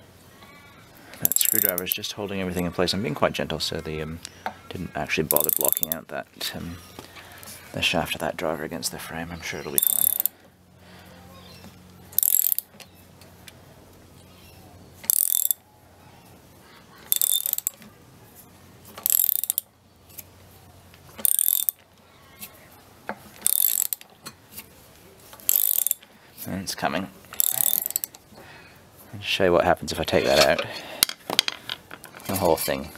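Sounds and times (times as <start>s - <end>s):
socket ratchet clicking: 1.2s - 1.9s, 5.3s - 6.0s, 9.8s - 10.3s, 12.1s - 12.7s, 15.0s - 15.6s, 17.1s - 17.8s, 19.0s - 19.7s, 21.2s - 21.8s, 23.4s - 24.1s, 25.4s - 26.0s, 27.4s - 28.2s.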